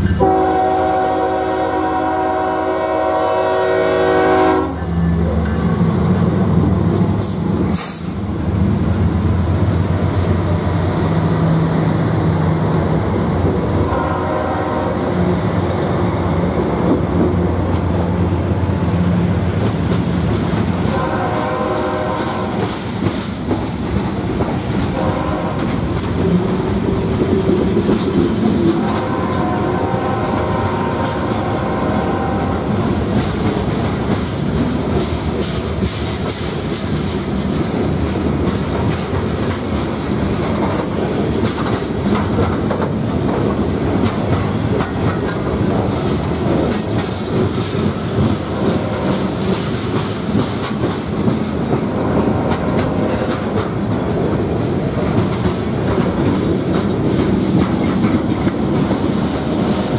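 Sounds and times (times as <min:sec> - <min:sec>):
diesel locomotive drone: 0:00.0 - 0:59.9
train wheels clickety-clack on rails: 0:00.0 - 0:59.9
train horn: 0:00.1 - 0:05.1, 0:13.8 - 0:15.6, 0:20.8 - 0:22.8, 0:24.9 - 0:26.4, 0:28.7 - 0:33.0, 0:48.6 - 0:49.5, 0:52.0 - 0:53.6.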